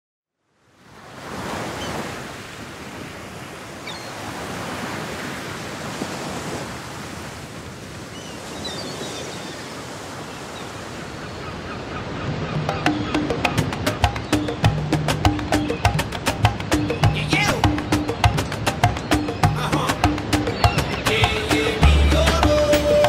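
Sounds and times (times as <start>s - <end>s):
ocean surf washing in: 0.8s - 23.0s
percussive music with a beat: 12.6s - 23.0s.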